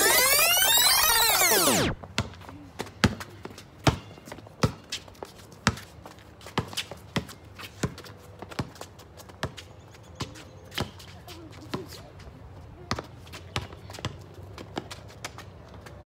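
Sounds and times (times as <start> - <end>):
basketball bouncing on concrete: 2.0 - 9.6, 12.8 - 15.8.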